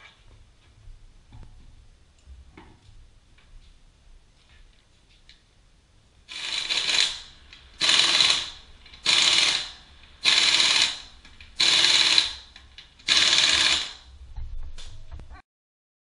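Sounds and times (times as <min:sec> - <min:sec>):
impact wrench bursts: 0:06.3 - 0:14.1.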